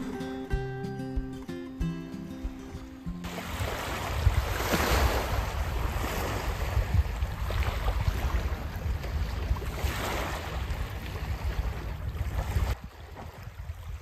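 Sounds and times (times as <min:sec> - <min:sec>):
wind buffeting microphone: 0:00.0 - 0:14.0
small waves on a pebble beach: 0:03.2 - 0:14.0.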